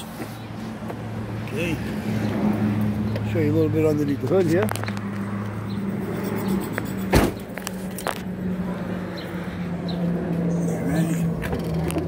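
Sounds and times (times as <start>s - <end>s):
sharp knock: 7.1s - 7.4s.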